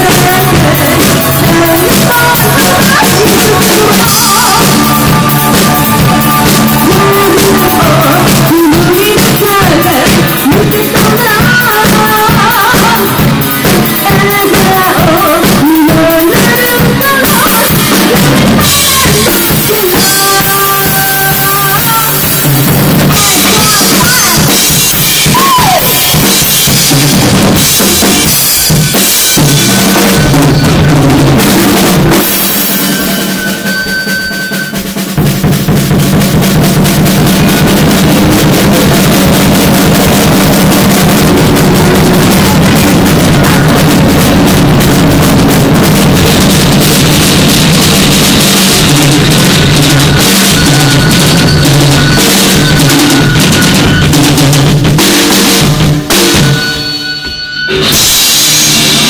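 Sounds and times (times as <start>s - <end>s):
woman singing: 0.0s - 22.5s, 23.1s - 26.2s
drum kit: 0.0s - 59.0s
electric guitar: 0.0s - 59.0s.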